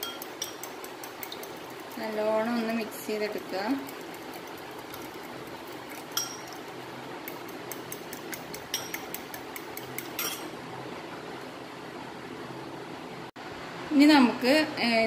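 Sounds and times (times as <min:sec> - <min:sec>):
fork beating eggs in glass bowl: 0:00.0 - 0:10.5.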